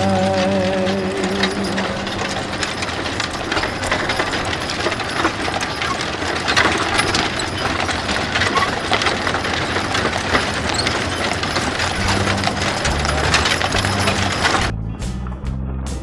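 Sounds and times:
clatter of hooves: 0:00.0 - 0:14.7
rattling wooden wagons: 0:00.0 - 0:14.7
music with low bass line: 0:14.7 - 0:16.0.

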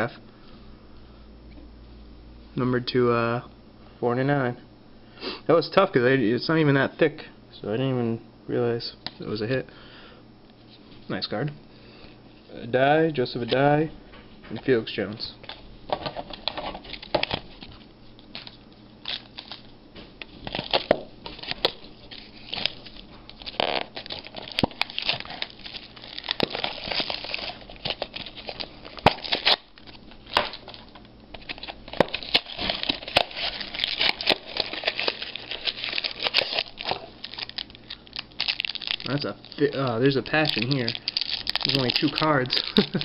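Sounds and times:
plastic wrap crinkling and tearing: 0:15.5 - 0:43.0.

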